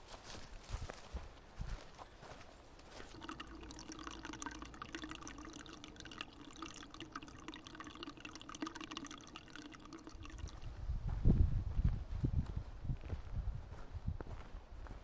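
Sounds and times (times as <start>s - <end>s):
water trickling and splashing: 2.9s - 10.7s.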